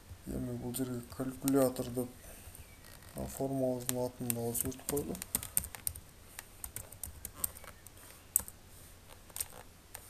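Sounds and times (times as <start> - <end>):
computer keyboard keys clicking: 3.9 - 6.0, 6.6 - 7.8.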